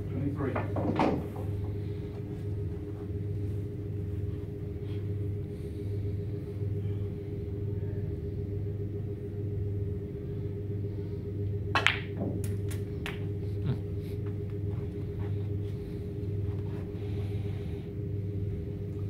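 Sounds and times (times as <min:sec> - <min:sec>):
steady low hum: 0:00.0 - 0:19.0
cue striking ball: 0:00.6 - 0:01.9, 0:11.7 - 0:13.4
balls knocking together: 0:11.8 - 0:13.4.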